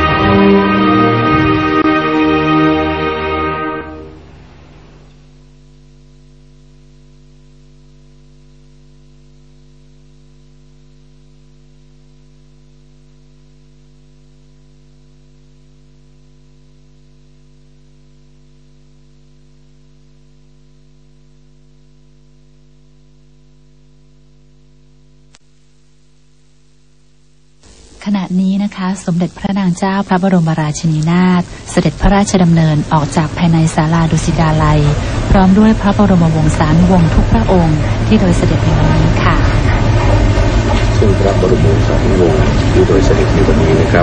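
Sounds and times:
music: 0:00.0 - 0:04.4, 0:38.0 - 0:44.0
electrical mains hum: 0:00.0 - 0:44.0.

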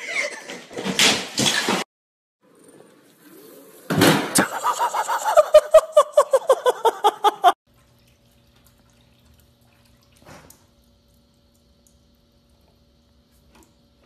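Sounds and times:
person laughing hard: 0:04.4 - 0:07.6.

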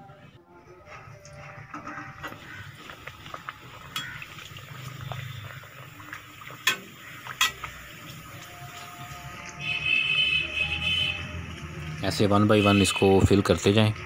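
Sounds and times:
food sizzling in hot oil: 0:01.7 - 0:14.0
utensil clicking against pan: 0:06.6 - 0:07.8.

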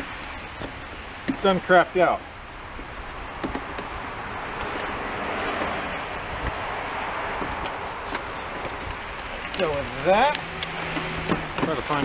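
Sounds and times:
wind on microphone: 0:02.5 - 0:12.0.

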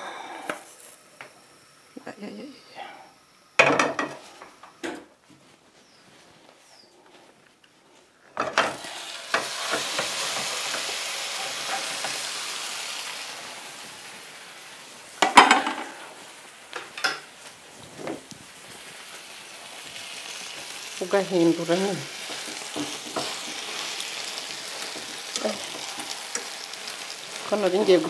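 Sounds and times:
omelette sizzling in a frying pan: 0:08.4 - 0:28.0
clatter against a pan: 0:15.2 - 0:15.9.

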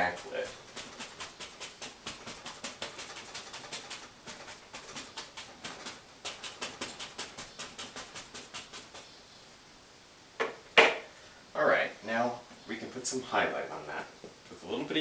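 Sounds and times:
brush tapping on canvas: 0:00.0 - 0:09.1.

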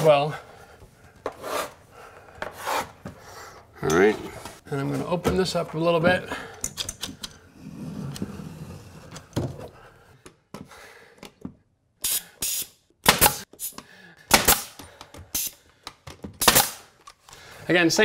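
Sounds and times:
nail gun firing: 0:12.1 - 0:13.5, 0:14.3 - 0:14.8, 0:16.4 - 0:16.9.

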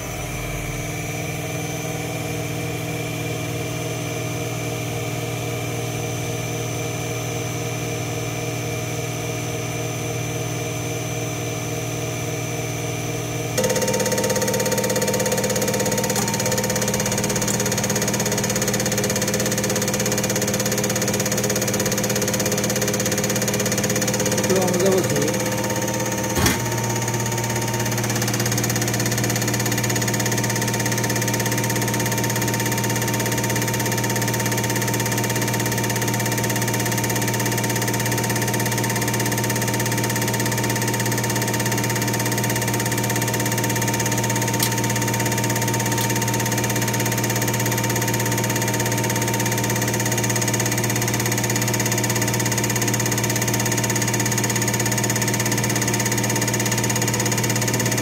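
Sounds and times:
pump motor humming: 0:13.6 - 0:58.0
short click: 0:44.6 - 0:45.0, 0:45.9 - 0:46.2.

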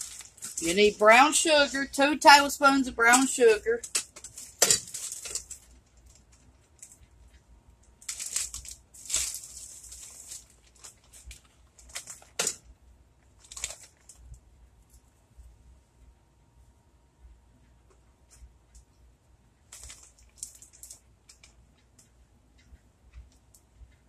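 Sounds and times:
sugar bag crinkling and rustling: 0:00.0 - 0:07.1, 0:07.9 - 0:12.6, 0:13.2 - 0:15.1, 0:19.7 - 0:21.6.

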